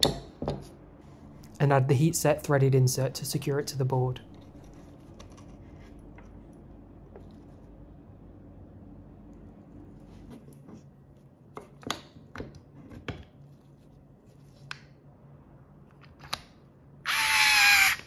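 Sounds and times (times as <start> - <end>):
loud whirring: 17.1 - 18.0.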